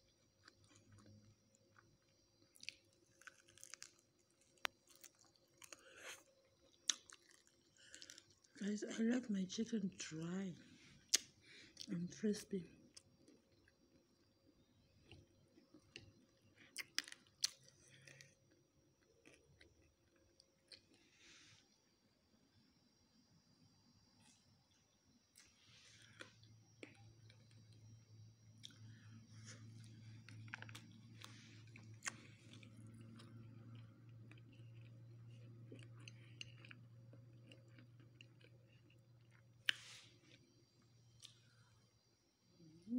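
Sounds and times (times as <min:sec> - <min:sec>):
low steady hum: 0:00.0 - 0:21.1, 0:24.2 - 0:42.9
chewing crispy fried chicken: 0:00.1 - 0:08.7, 0:12.8 - 0:21.6, 0:25.3 - 0:28.0, 0:28.6 - 0:41.6.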